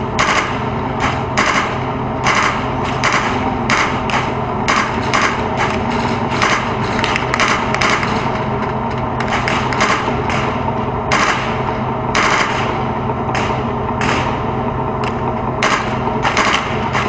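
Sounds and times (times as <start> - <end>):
tank diesel engine running: 0.0 - 17.0.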